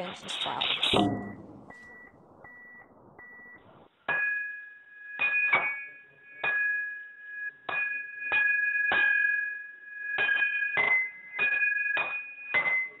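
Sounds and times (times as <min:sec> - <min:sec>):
bell-like chime: 0:00.9 - 0:02.1, 0:04.0 - 0:13.0
short high beeps: 0:00.9 - 0:02.8.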